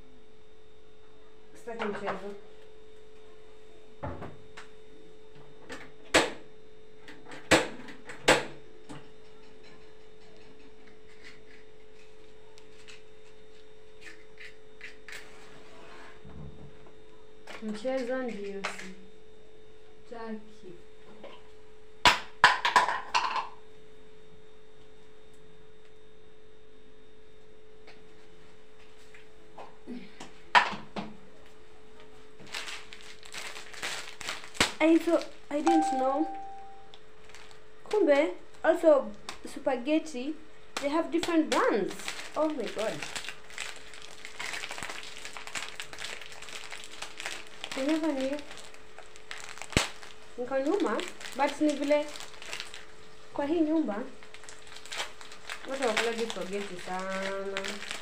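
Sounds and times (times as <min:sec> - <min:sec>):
steady faint hum: 0:00.0 - 0:58.0
steady hum: 0:31.2 - 0:58.0.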